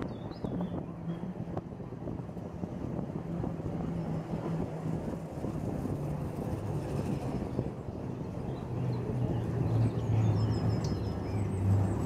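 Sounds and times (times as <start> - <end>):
funicular car rumbling: 0.0 - 12.0.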